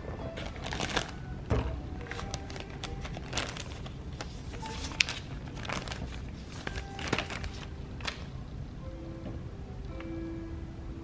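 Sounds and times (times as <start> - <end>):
paper bag crinkling: 0.3 - 1.2, 2.0 - 8.3.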